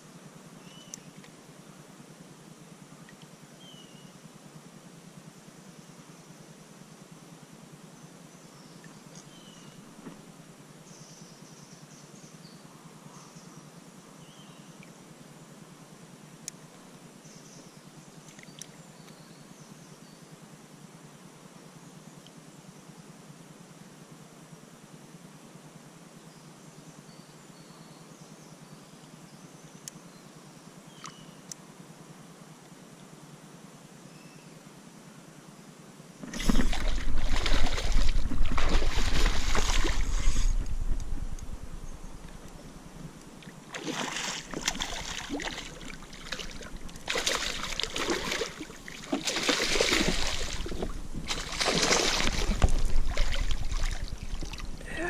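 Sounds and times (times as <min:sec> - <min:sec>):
faint birdsong chirps: 0:00.0 - 0:01.8, 0:02.9 - 0:04.4, 0:05.4 - 0:15.6, 0:16.3 - 0:23.2, 0:26.1 - 0:31.7, 0:33.8 - 0:55.0
fish thrashing and splashing: 0:36.2 - 0:41.2, 0:43.7 - 0:54.8.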